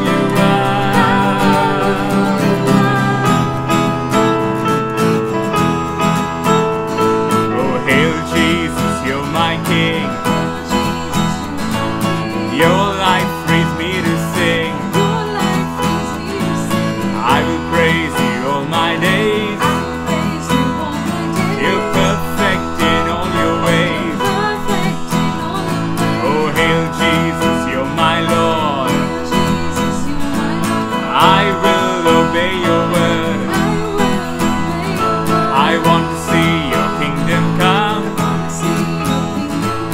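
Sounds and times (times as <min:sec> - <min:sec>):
man singing: 0:00.0 - 0:04.4, 0:07.3 - 0:39.9
woman singing: 0:00.0 - 0:04.6, 0:07.5 - 0:39.9
acoustic guitar strumming: 0:00.0 - 0:39.9
electronic keyboard playing: 0:00.0 - 0:39.9.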